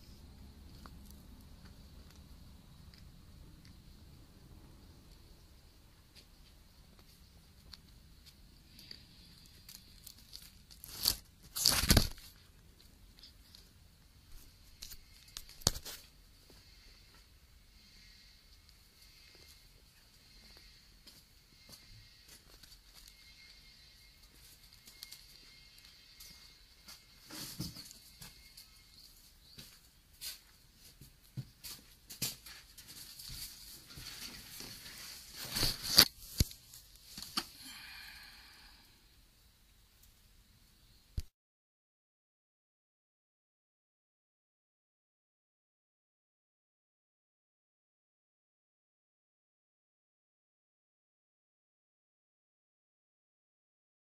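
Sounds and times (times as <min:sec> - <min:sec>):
scraping rustle: 0:31.6 - 0:37.4
camera handling scrape: 0:35.4 - 0:36.5.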